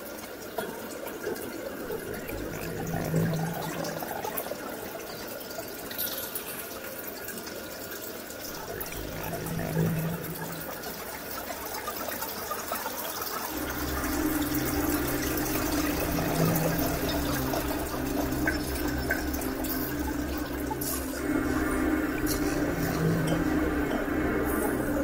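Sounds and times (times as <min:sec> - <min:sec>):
trickling water: 0:00.0 - 0:25.0
low steady hum: 0:01.9 - 0:04.3, 0:08.5 - 0:11.4, 0:13.5 - 0:25.0.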